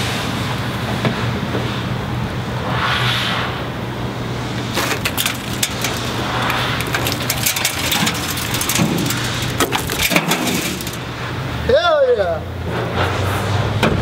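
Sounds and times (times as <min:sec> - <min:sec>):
glass crackling and crunching: 0:04.6 - 0:11.2.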